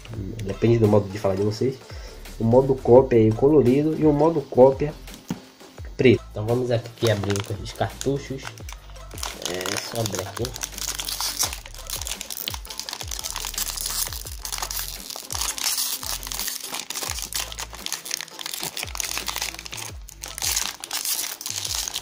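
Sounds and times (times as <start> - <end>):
background music with deep bass: 0.0 - 22.0
foil pouch crinkling and tearing: 7.0 - 22.0.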